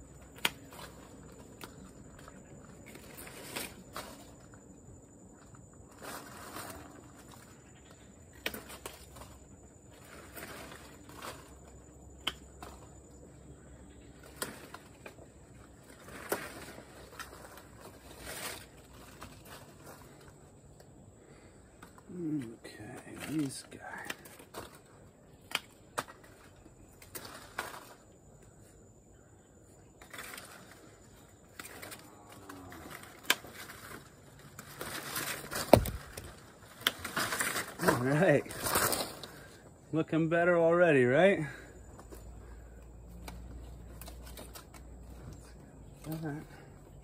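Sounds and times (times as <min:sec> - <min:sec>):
leaves and twigs rustling: 0:00.0 - 0:47.0
pruners snipping: 0:35.6 - 0:37.0.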